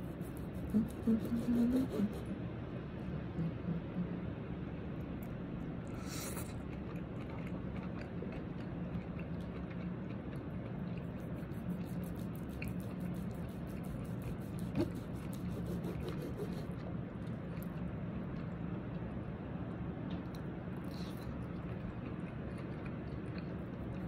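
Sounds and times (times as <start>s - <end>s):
steady low hum: 0.0s - 24.0s
chewing: 5.2s - 19.0s, 20.1s - 24.0s
knife sawing through steak: 14.5s - 16.6s.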